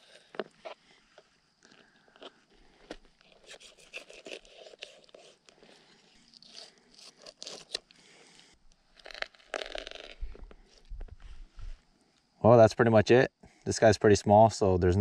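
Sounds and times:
knife scraping through fish: 3.2s - 5.7s.

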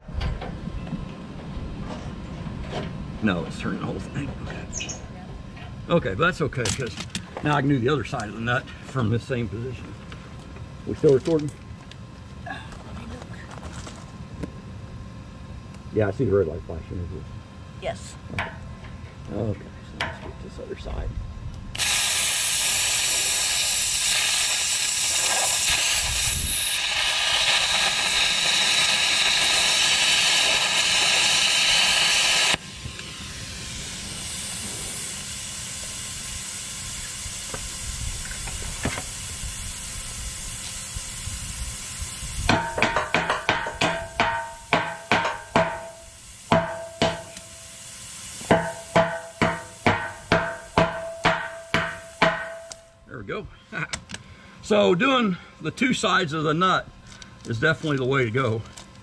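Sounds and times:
plasma cutter arc hissing: 21.8s - 52.9s
hammer ringing on steel: 42.6s - 47.3s, 48.5s - 52.8s.

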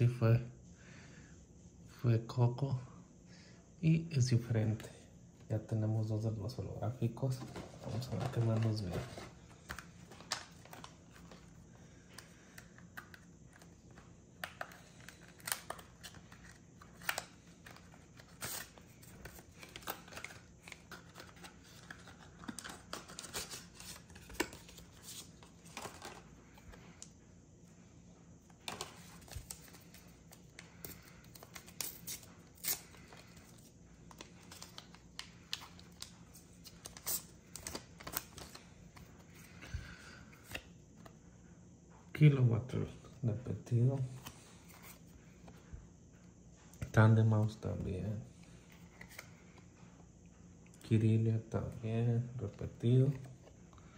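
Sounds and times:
cards clicking: 12.1s - 26.7s
packaging rustling and tearing: 12.5s - 26.7s.

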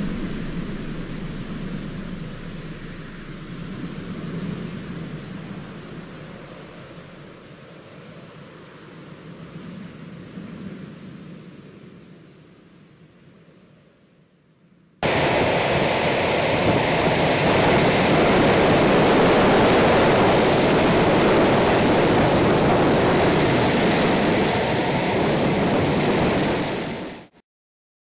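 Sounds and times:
loud rushing noise: 0.0s - 7.4s, 15.0s - 27.3s.

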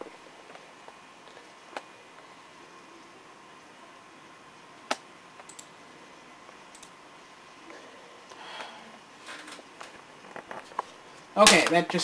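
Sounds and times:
computer mouse clicking: 4.9s - 5.7s, 6.5s - 7.0s.

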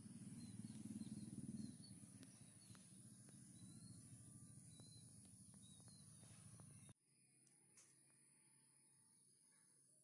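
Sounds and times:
low hum: 0.0s - 9.8s
faint high chirps and ticks: 0.0s - 10.0s.

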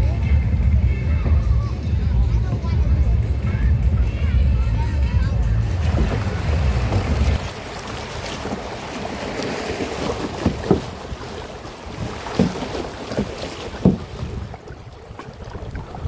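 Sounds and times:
water splashing: 0.0s - 16.0s
river rapids rushing: 5.5s - 16.0s.

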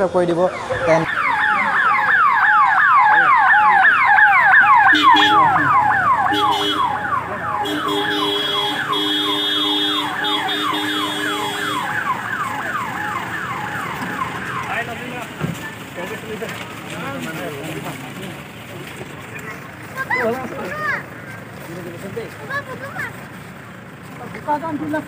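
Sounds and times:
electronic vehicle siren wailing: 0.3s - 15.4s
vehicle horn blasts: 4.9s - 5.6s, 6.3s - 7.0s, 7.6s - 12.0s.

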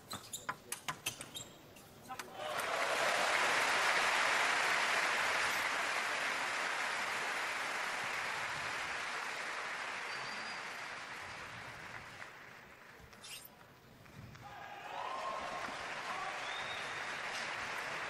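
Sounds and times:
crowd applauding: 2.4s - 13.1s, 14.4s - 18.0s.

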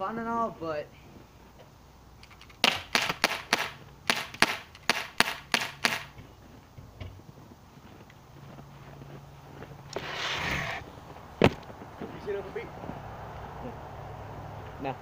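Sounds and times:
pellet gun firing sharp cracks: 2.3s - 6.2s.

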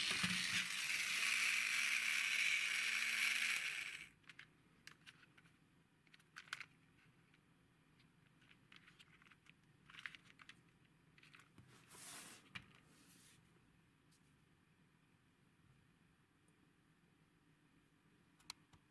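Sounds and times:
hands handling plastic toy car: 3.2s - 13.1s.

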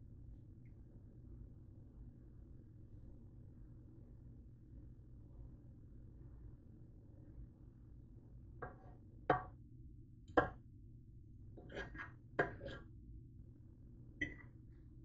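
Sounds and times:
low steady hum: 0.0s - 15.0s
plastic spoon knocking on pot: 8.6s - 9.6s, 10.3s - 10.6s, 11.6s - 12.8s.

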